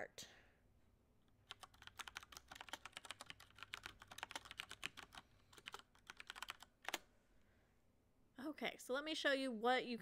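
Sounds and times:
computer keyboard typing clicks: 0:01.4 - 0:07.0.

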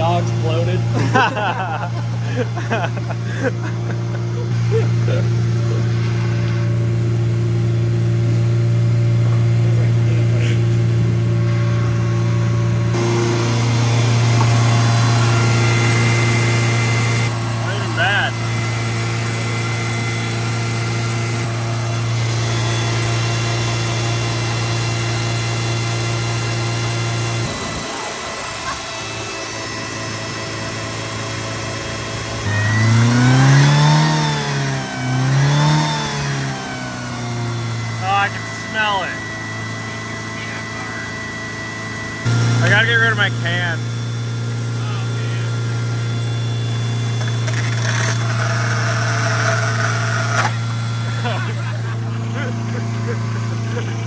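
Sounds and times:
pickup engine idling: 0:00.0 - 0:20.7, 0:26.0 - 0:32.4.

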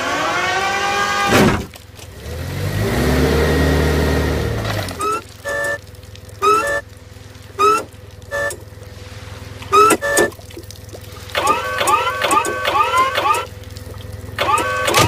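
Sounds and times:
low engine hum: 0:00.0 - 0:15.0
short flat toots: 0:06.4 - 0:06.8, 0:07.6 - 0:08.6, 0:09.7 - 0:10.4.

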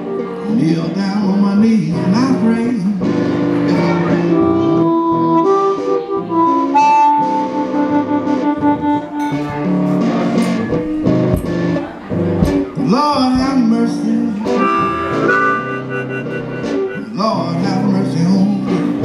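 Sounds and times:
guitar accompaniment: 0:00.0 - 0:19.0
blues harmonica solo: 0:03.0 - 0:11.3, 0:13.9 - 0:19.0.

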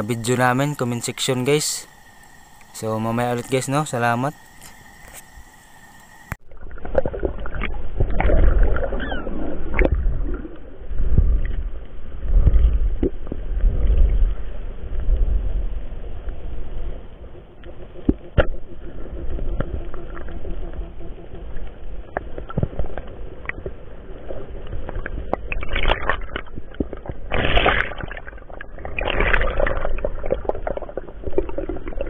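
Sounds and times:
underwater clicks and knocks: 0:17.6 - 0:23.8.

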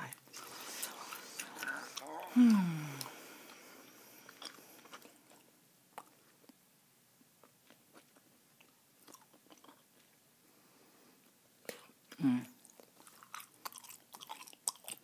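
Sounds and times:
mouth chewing gum: 0:11.6 - 0:15.0.

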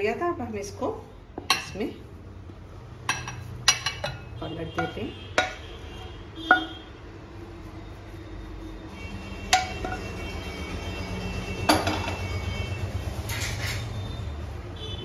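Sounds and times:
spatula knocking against pan: 0:03.1 - 0:05.7, 0:06.5 - 0:06.8, 0:09.5 - 0:10.1.

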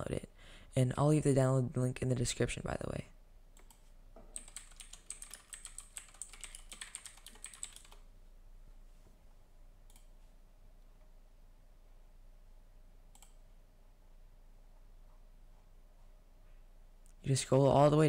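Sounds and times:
typing on computer keyboard: 0:03.6 - 0:08.1.

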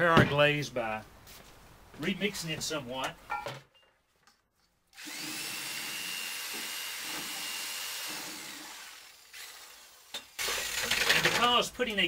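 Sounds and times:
electric drill motor whining: 0:05.0 - 0:11.4.

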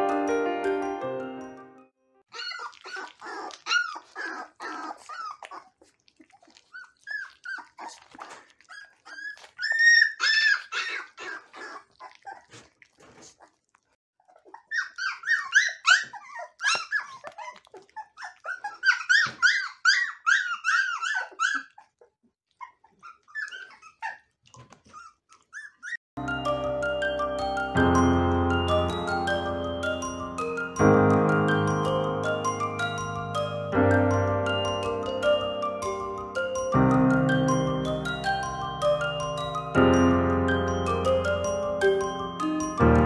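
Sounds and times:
puppies whining and squealing: 0:02.3 - 0:13.5, 0:14.2 - 0:26.0, 0:31.4 - 0:42.8
wet smacking eating sounds: 0:02.5 - 0:09.9, 0:11.3 - 0:14.0, 0:16.2 - 0:19.5, 0:24.4 - 0:25.6.

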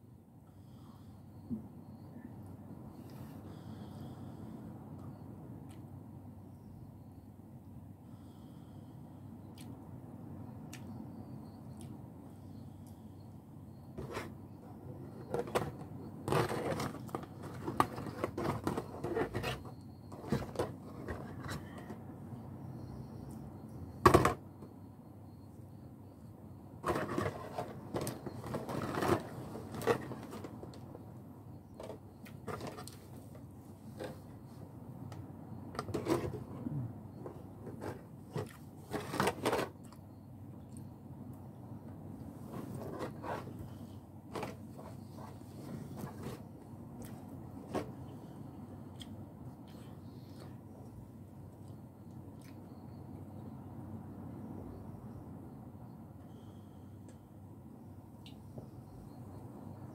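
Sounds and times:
handling clicks and rustles: 0:15.0 - 0:22.0, 0:26.8 - 0:31.0.

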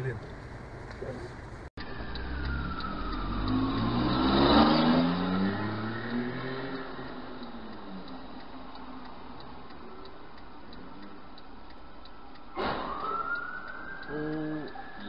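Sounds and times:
turn signal ticking: 0:00.0 - 0:15.0
long rising tone: 0:01.8 - 0:15.0
sudden loud hit: 0:12.6 - 0:13.0.

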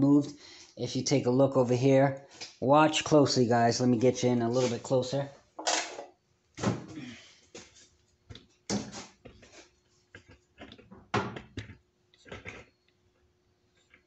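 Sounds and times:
clunks and knocks at a workbench: 0:10.2 - 0:12.6.

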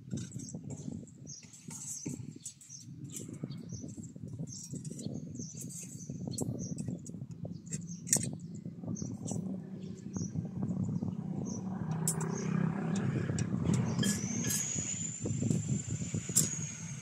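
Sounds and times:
metal rebar clinking and scraping: 0:00.0 - 0:07.0, 0:12.0 - 0:17.0
steady low rumble: 0:06.4 - 0:17.0.

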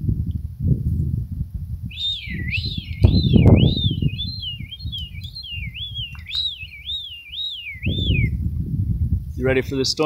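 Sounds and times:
low rumbling noise: 0:01.5 - 0:09.3
person whistling a warbling call: 0:01.9 - 0:08.4.

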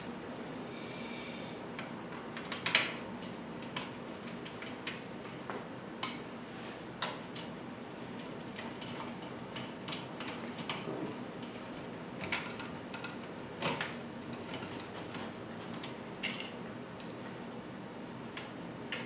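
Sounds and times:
clicks and knocks of small parts: 0:08.2 - 0:17.2.

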